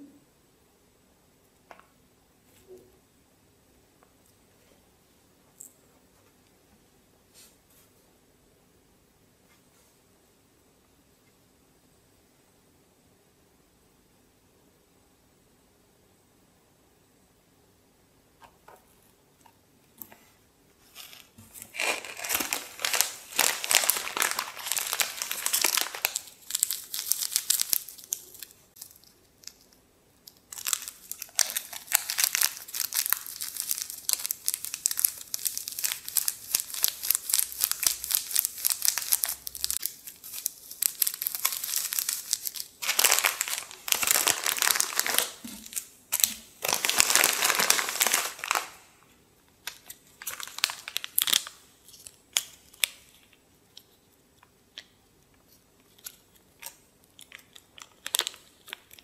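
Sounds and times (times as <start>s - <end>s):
plastic and paper wrappers crinkling: 20.9s - 49.0s, 49.6s - 54.0s, 55.8s - 59.0s.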